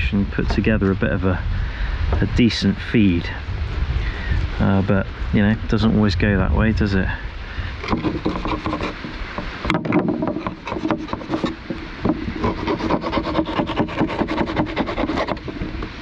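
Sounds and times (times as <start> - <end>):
knife scraping fish: 7.8 - 9.1, 10.3 - 15.8.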